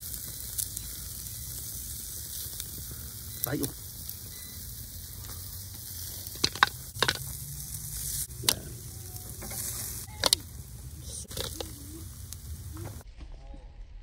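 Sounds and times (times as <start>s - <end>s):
meat sizzling on grill: 0.0s - 13.0s.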